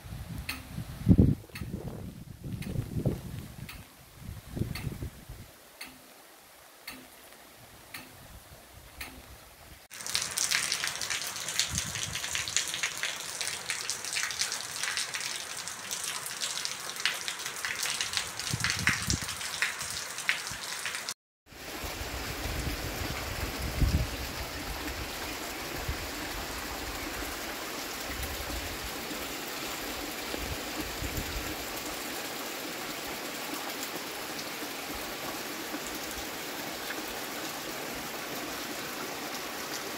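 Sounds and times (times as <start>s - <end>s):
heavy rain falling: 9.9s - 39.9s.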